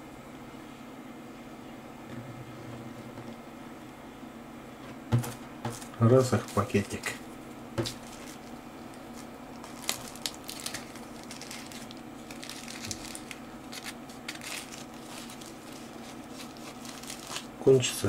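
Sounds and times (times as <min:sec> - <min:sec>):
plastic bag crinkling: 0:05.2 - 0:07.2, 0:07.8 - 0:17.6.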